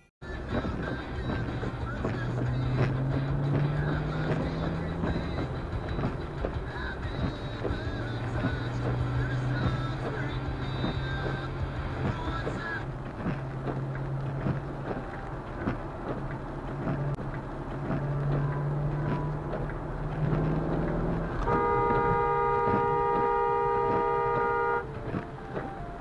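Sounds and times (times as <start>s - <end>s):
tyre noise on wet road: 0.2s - 26.0s
car horn blast: 21.4s - 24.9s.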